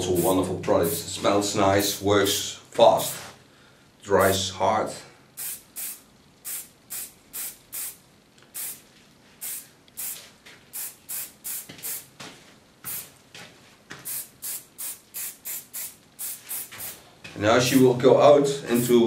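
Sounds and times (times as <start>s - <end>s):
aerosol spray hissing bursts: 5.4s - 8.0s, 8.6s - 8.8s, 9.4s - 12.1s, 12.9s - 13.1s, 14.0s - 17.0s, 18.8s - 19.0s.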